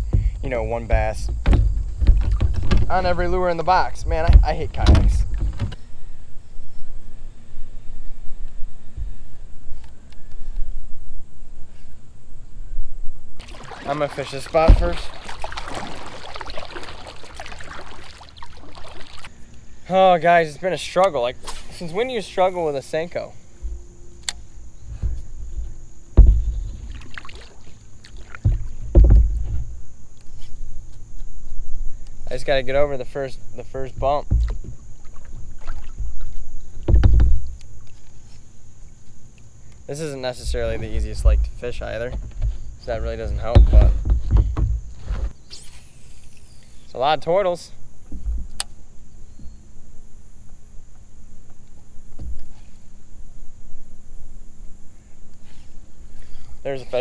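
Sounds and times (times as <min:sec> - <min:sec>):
dull knocks on kayak hull: 0:00.0 - 0:03.0, 0:24.9 - 0:26.9, 0:28.3 - 0:29.6, 0:34.0 - 0:35.2, 0:36.8 - 0:37.6, 0:43.4 - 0:45.3
low thuds through kayak hull: 0:00.0 - 0:05.9, 0:13.4 - 0:19.4, 0:24.8 - 0:29.9, 0:33.6 - 0:37.6, 0:40.4 - 0:45.4
water and wind noise: 0:00.0 - 0:45.4, 0:46.0 - 0:57.0
paddle strokes and splashes: 0:13.4 - 0:19.4, 0:26.4 - 0:29.2, 0:34.0 - 0:38.4.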